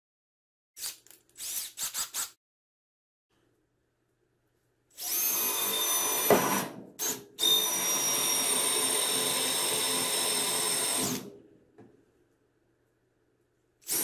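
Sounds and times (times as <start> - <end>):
cordless drill boring through wood: 5.0 - 11.3.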